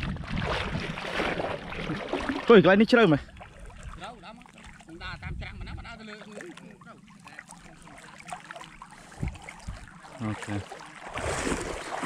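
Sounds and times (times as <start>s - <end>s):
wading through floodwater: 0.0s - 12.0s.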